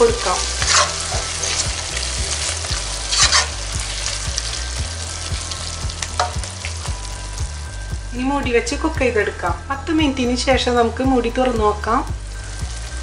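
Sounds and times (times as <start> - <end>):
vegetables sizzling in oil: 0.0 - 8.4, 11.0 - 13.0
wooden spatula scraping pan: 0.5 - 1.8, 3.1 - 3.6.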